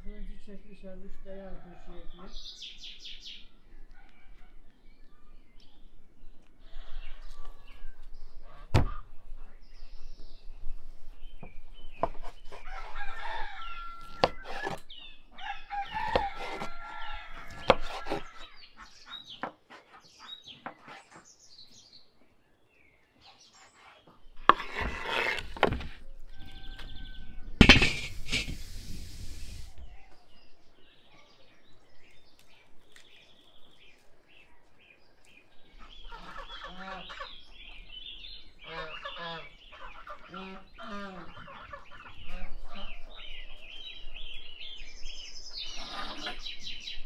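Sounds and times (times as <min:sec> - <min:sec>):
rooster crowing: 0:12.6 - 0:14.6, 0:15.4 - 0:17.8, 0:26.3 - 0:27.6
knife cutting fat: 0:14.0 - 0:14.8, 0:15.9 - 0:16.8, 0:17.4 - 0:18.4.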